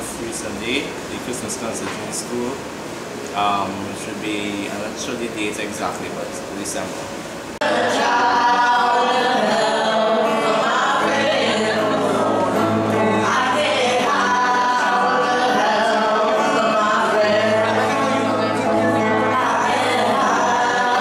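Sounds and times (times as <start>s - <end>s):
acoustic guitar: 0.0s - 21.0s
woman singing: 7.6s - 21.0s.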